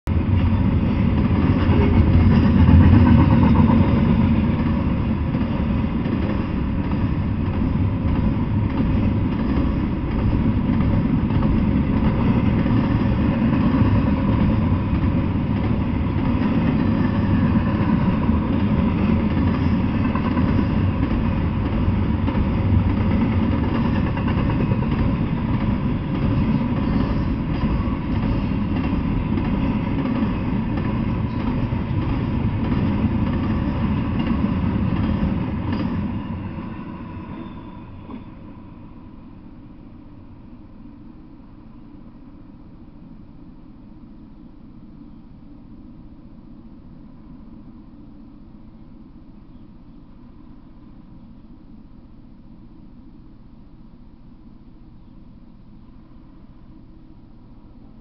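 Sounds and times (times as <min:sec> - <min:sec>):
train wheels rumbling on rails: 0:00.1 - 0:42.9.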